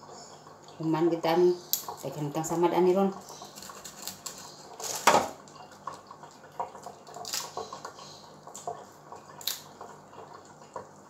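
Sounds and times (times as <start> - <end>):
prawn shells being peeled: 3.4 - 5.2, 6.9 - 7.9.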